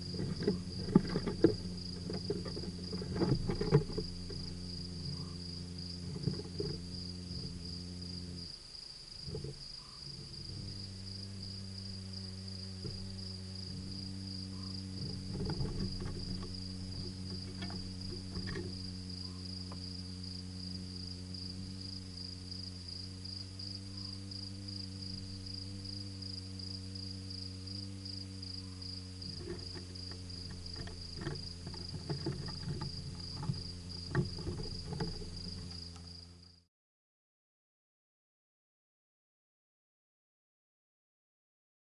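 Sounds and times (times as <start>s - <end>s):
constant low hum: 0.0s - 36.7s
cricket chirping: 0.0s - 36.7s
dormouse scratching on microphone: 29.3s - 35.8s.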